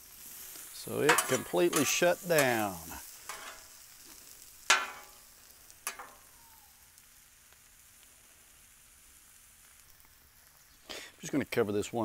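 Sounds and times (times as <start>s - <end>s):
food sizzling on a griddle: 0.0s - 12.0s
metal spatula clanking on griddle: 1.0s - 3.8s, 4.7s - 5.2s, 5.8s - 6.3s.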